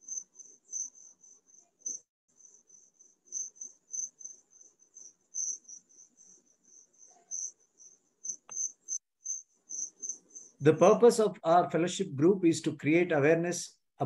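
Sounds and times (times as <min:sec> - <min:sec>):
cricket chirping: 0:00.0 - 0:10.7.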